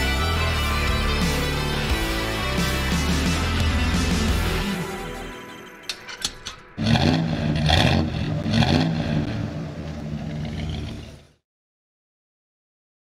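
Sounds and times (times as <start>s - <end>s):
car engine revving: 6.8s - 11.4s.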